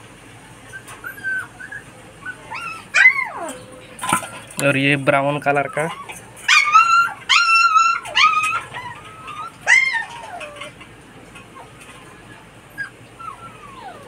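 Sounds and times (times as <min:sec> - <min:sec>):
puppy whimpering: 0:00.7 - 0:04.5, 0:05.3 - 0:10.8, 0:11.5 - 0:14.0.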